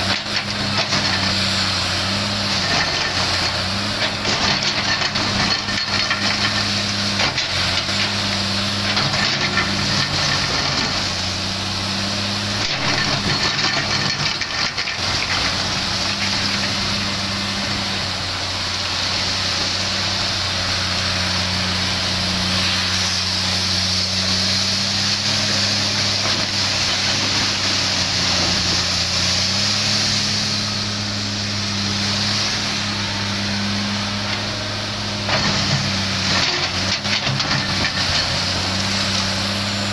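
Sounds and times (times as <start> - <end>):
steel bucket scraping coal: 0.0 - 30.9, 31.5 - 39.9
excavator diesel engine running: 0.0 - 39.9.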